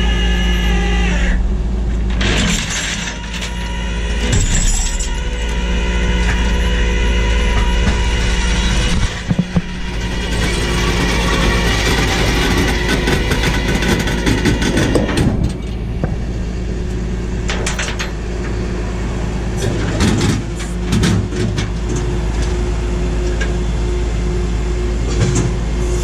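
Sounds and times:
truck engine running: 0.0s - 26.0s.

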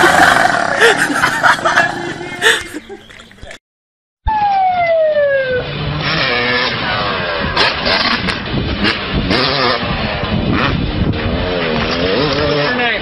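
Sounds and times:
motorcycle engine revving: 5.6s - 13.0s.

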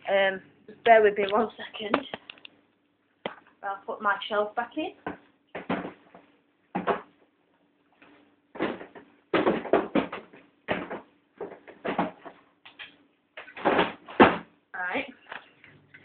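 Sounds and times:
faint steady hum: 0.0s - 16.0s
freezer shelf knocks and scrapes: 13.5s - 14.5s.

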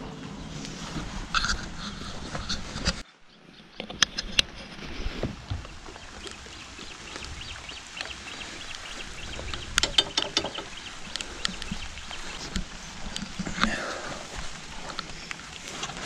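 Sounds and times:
hands clicking engine controls: 9.5s - 11.8s.

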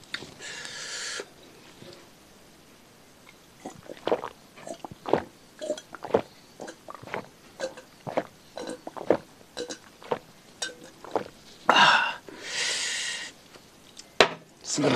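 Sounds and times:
man gulping water: 3.6s - 12.2s.

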